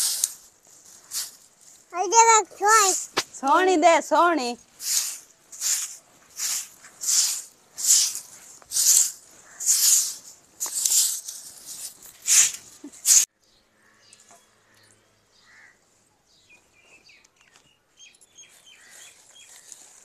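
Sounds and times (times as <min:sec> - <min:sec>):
broom sweeping earth floor: 0:00.0 - 0:13.3, 0:18.4 - 0:20.0.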